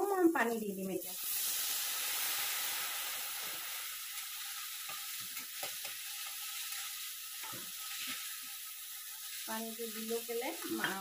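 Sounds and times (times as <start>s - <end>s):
vegetables sizzling in oil: 0.0s - 11.0s
spatula stirring pan: 3.4s - 11.0s.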